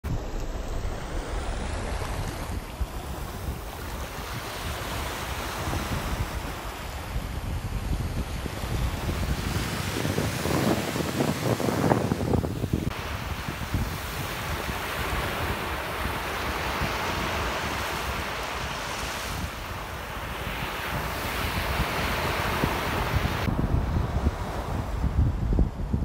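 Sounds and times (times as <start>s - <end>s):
wind buffeting microphone: 0.0s - 26.0s
foam hissing on wet sand: 0.1s - 7.3s, 8.2s - 23.5s
small waves breaking on shore: 0.1s - 25.2s.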